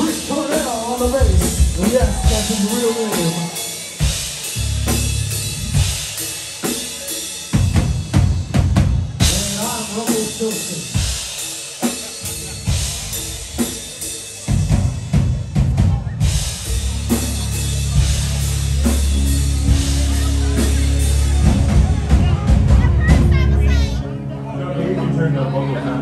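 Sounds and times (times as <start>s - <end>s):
crashing cymbals: 0.0s - 8.4s
rock drum kit played hard: 0.0s - 24.0s
sustained low bass note: 16.7s - 24.0s.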